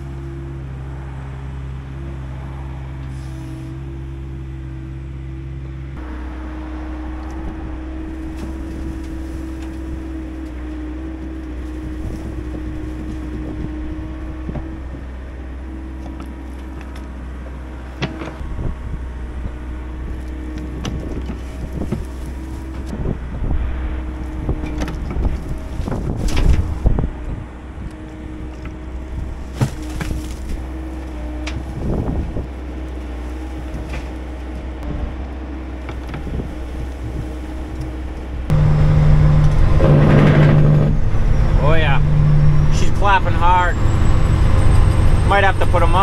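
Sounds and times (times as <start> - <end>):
diesel engines running: 0.0 - 46.0
dirt thudding into steel truck body: 28.5 - 34.6.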